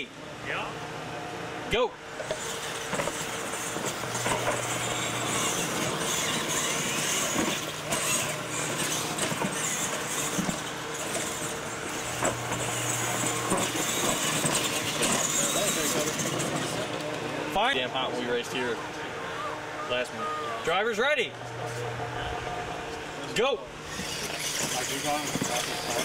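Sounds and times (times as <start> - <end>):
rc truck motors whining: 2.1 - 26.0
tyres on dirt: 2.2 - 17.4, 23.8 - 26.0.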